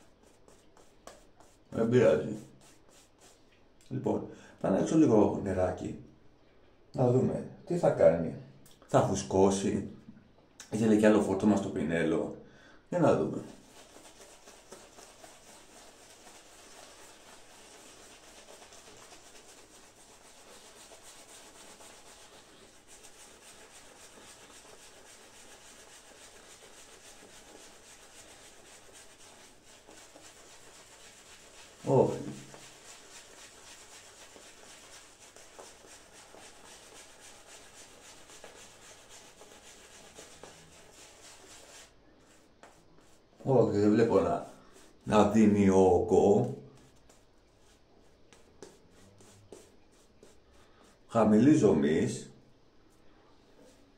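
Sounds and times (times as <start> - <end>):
shaving brush rubbing lather: 0.0 - 3.4, 13.0 - 52.2.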